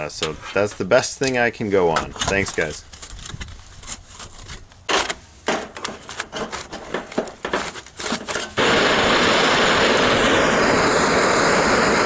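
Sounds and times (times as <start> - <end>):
sheet metal crinkling and scraping: 0.0 - 8.6
gas torch hissing: 8.6 - 12.0.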